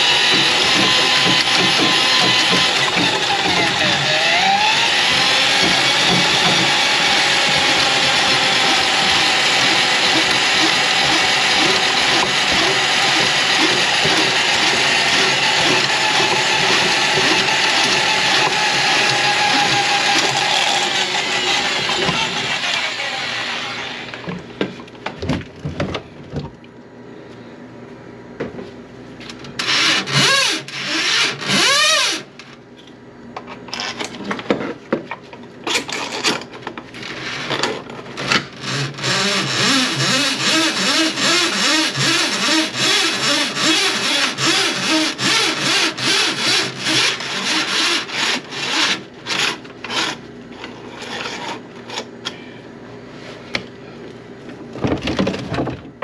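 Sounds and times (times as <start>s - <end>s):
drain-cleaning machine motor: 0.0s - 24.6s, 38.6s - 50.1s
knocks: 0.3s - 3.8s, 5.5s - 6.8s.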